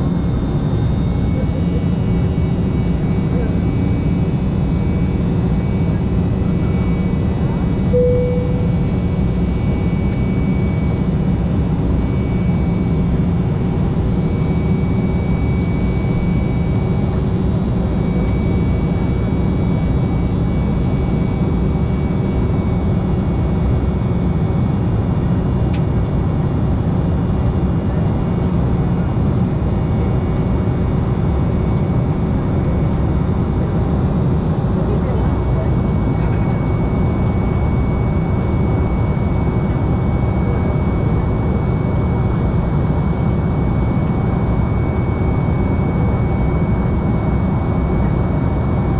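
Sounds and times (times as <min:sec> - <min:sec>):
steady whining tones: 0:00.0 - 0:22.4
aircraft cabin engine rush: 0:00.0 - 0:48.9.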